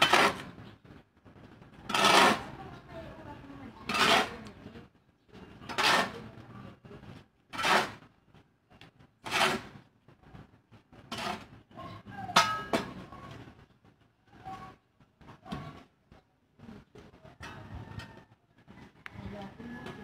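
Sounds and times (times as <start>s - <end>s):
shovel scraping ash on concrete: 0.0s - 0.6s, 1.9s - 2.6s, 3.8s - 4.6s, 5.6s - 6.4s, 7.5s - 8.1s, 9.2s - 9.9s, 11.0s - 11.6s.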